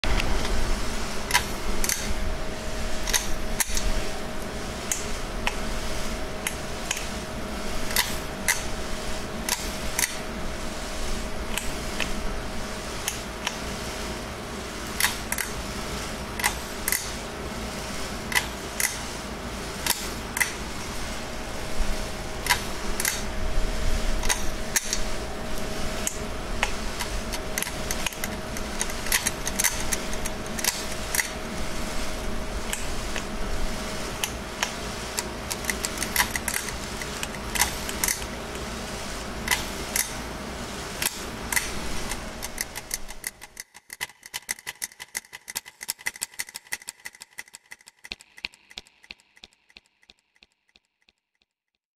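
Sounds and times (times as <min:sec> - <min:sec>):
steady low hum: 0:00.0 - 0:46.6
sharp ticks and clicks: 0:41.0 - 0:51.5.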